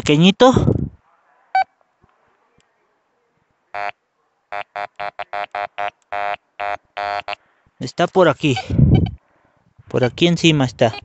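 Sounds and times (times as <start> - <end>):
metal detector beeps: 8.5 - 9.2.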